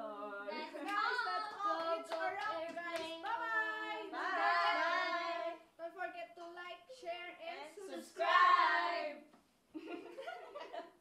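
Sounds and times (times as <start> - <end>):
women singing and calling: 0.0 - 6.1
hand claps: 2.1 - 3.4.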